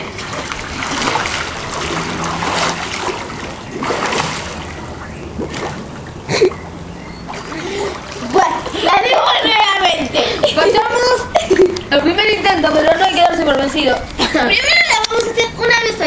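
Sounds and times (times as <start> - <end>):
pool water splashing: 0.0 - 16.0.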